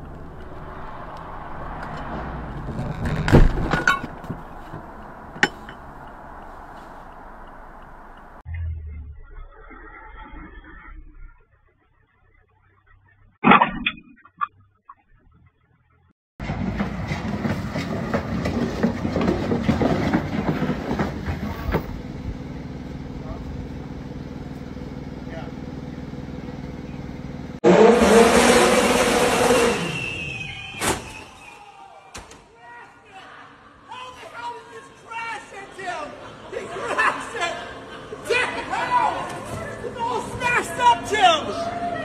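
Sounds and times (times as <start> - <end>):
car road noise: 0.0 - 11.5, 15.2 - 30.5.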